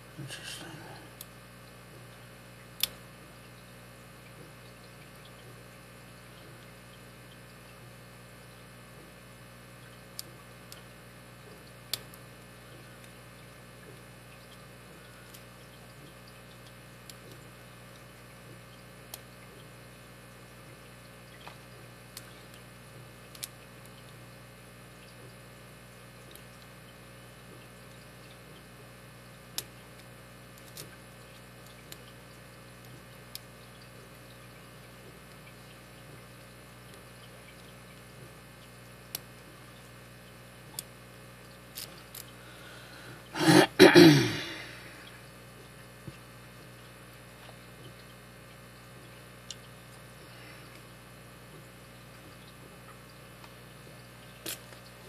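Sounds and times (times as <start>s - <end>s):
person clearing throat: 43.4s - 44.8s.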